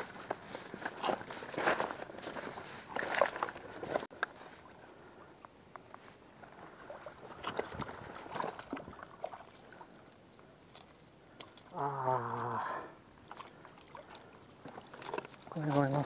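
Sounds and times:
footsteps on wet stones and mud: 0.0s - 4.3s, 13.2s - 16.0s.

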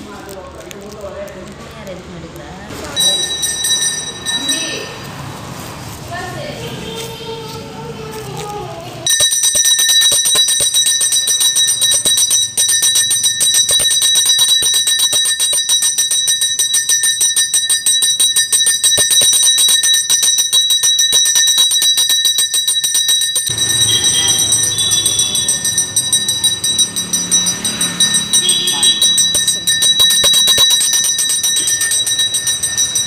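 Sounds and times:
small brass hand bell ringing: 2.8s - 5.3s, 9.0s - 33.0s.

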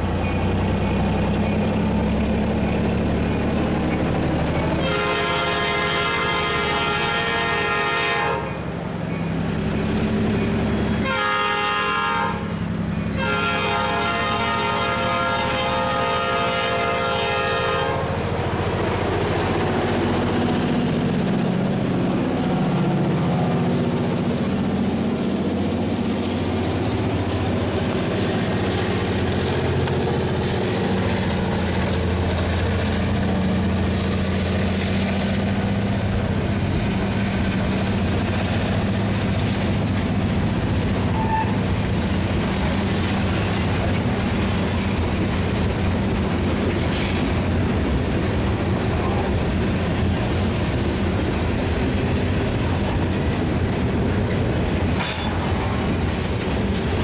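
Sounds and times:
train wheels clacking on rail joints: 0.0s - 5.0s, 18.4s - 57.0s
diesel engine rumbling: 0.0s - 7.8s, 8.8s - 57.0s
locomotive air horn blasts: 4.8s - 8.5s, 11.0s - 12.5s, 13.2s - 18.2s.

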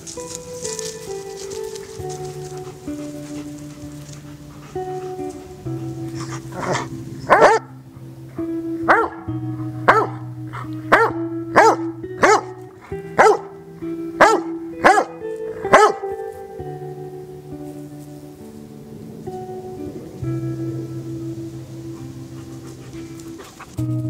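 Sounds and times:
acoustic guitar music: 0.0s - 24.0s
dog barking: 6.2s - 7.8s, 8.9s - 10.3s, 10.9s - 12.6s, 13.2s - 13.6s, 14.2s - 16.1s.

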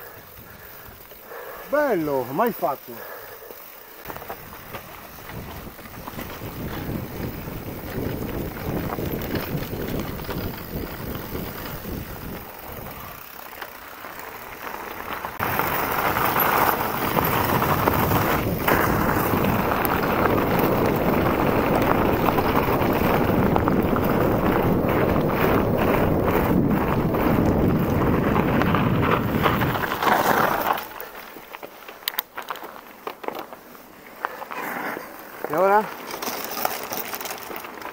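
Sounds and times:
bike tyres rumbling on trail: 0.0s - 37.9s
wind buffeting microphone: 4.2s - 13.2s, 15.4s - 30.0s.

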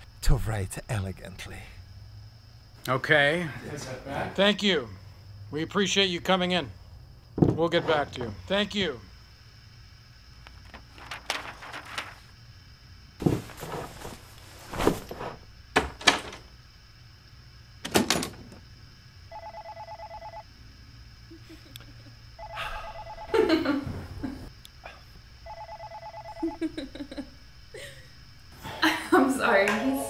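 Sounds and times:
paper rustling: 10.6s - 12.3s, 13.2s - 15.4s
electronic telephone ringing: 19.3s - 20.4s, 22.4s - 23.5s, 25.4s - 26.7s.

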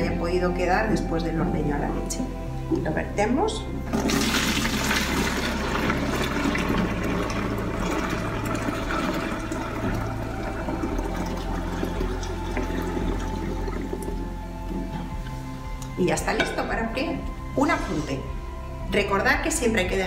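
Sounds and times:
milk pouring through strainer: 3.9s - 14.3s.

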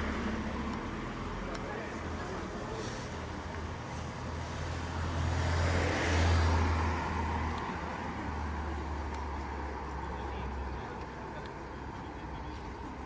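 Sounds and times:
low hum of street noise: 0.0s - 13.0s
car passing by: 1.8s - 10.5s.

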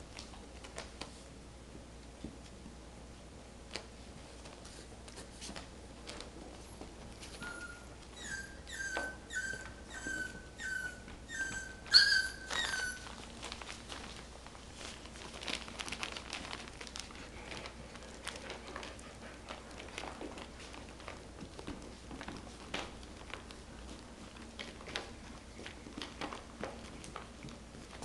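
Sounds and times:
faint clicks and rustles: 0.0s - 1.4s, 2.0s - 8.3s, 11.0s - 28.0s
puppy whining: 7.1s - 13.4s
puppy yelp: 7.3s - 13.2s.

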